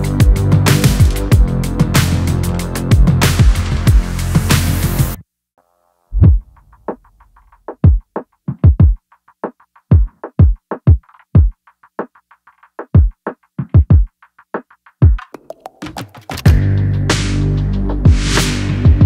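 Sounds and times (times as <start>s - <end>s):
deep kick drums: 6.2s - 6.5s.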